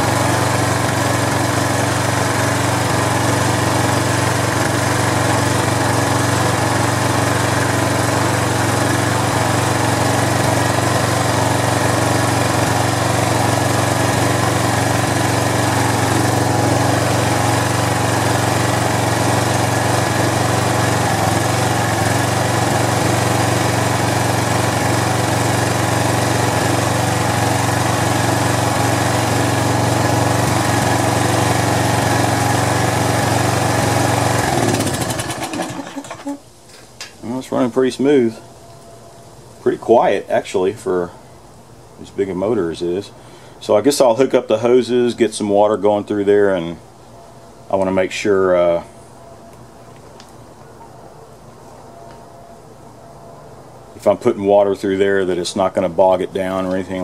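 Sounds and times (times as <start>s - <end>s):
pressure washer engine running: 0.0s - 36.4s, 54.0s - 57.0s.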